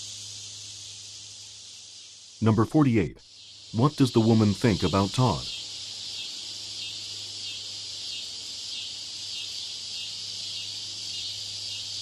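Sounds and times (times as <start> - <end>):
high-pitched hiss: 0.0 - 12.0
low steady hum: 2.4 - 3.2.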